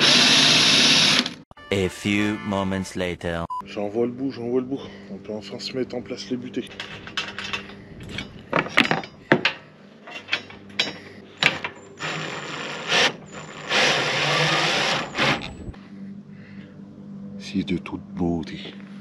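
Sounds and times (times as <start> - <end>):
power drill running: 0.0 - 1.4, 12.0 - 15.5
metal tools clicking and knocking: 6.7 - 11.7.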